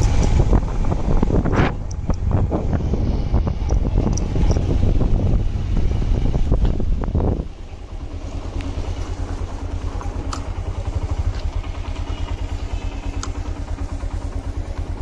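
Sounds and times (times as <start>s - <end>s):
small engine idling: 0.0s - 15.0s.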